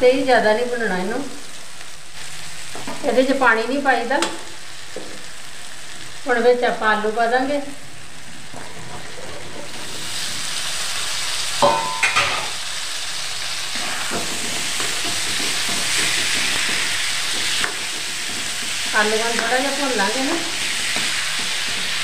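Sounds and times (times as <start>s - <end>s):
food sizzling in oil: 0.0s - 22.0s
metal clanks against pan: 11.6s - 12.6s
stirring in pan: 13.4s - 22.0s.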